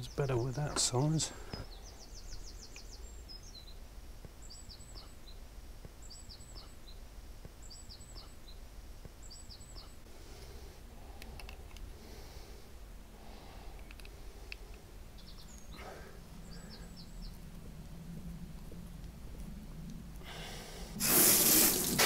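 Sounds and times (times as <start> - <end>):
songbird singing: 0.0 - 20.0
low background noise: 0.0 - 22.0
light clicks: 11.2 - 11.9, 13.7 - 15.7.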